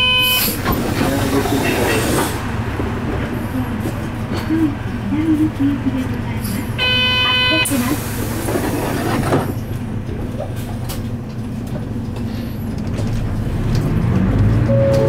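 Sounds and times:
bus diesel engine running: 0.0s - 15.0s.

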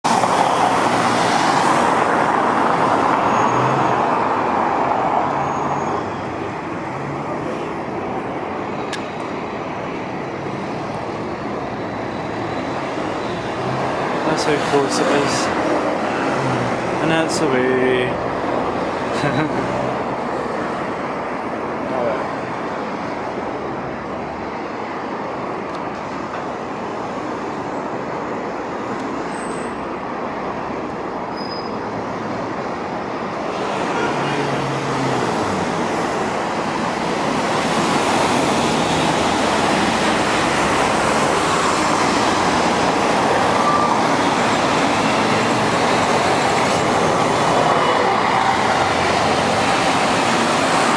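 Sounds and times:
road traffic: 0.0s - 50.9s.

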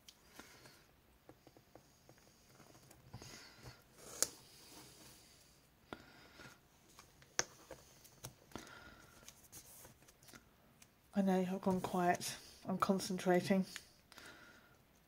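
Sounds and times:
faint paper rustling: 6.8s - 10.5s.

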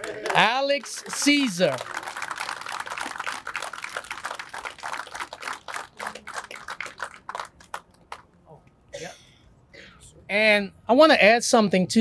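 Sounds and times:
crowd applauding: 0.0s - 8.3s.

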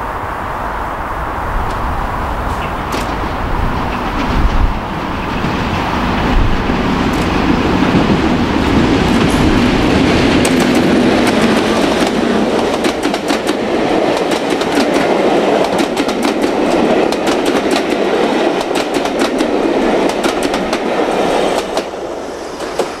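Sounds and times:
diesel locomotive engine rumble: 0.0s - 23.0s
wheels clattering over rail joints: 1.6s - 13.6s.

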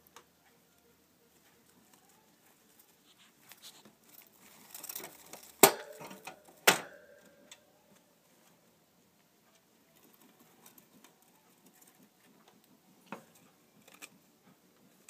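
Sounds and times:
clicks and rustling in cage: 2.5s - 7.0s.

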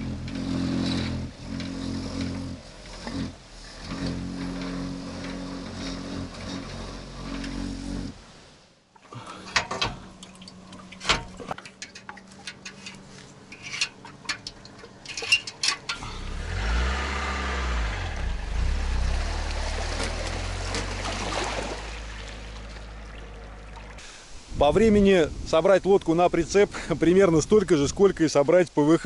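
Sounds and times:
water noise: 0.0s - 27.8s
metal clamp clicks and knocks: 9.4s - 16.0s.

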